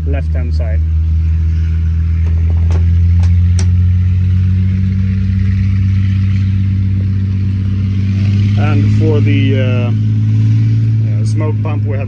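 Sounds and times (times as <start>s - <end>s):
engine droning: 0.0s - 12.0s.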